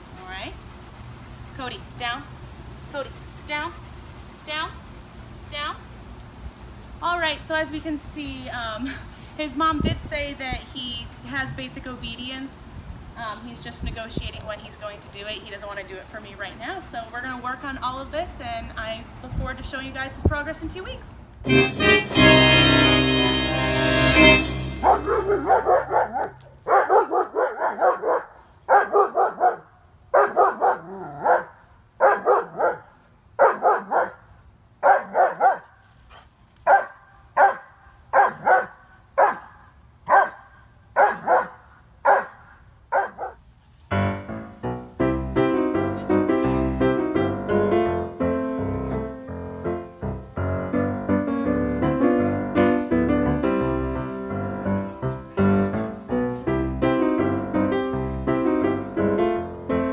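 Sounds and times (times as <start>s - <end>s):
piano music: 21.4s - 27.2s, 43.9s - 59.9s
dog barking: 24.8s - 34.2s, 34.8s - 35.7s, 36.7s - 43.4s.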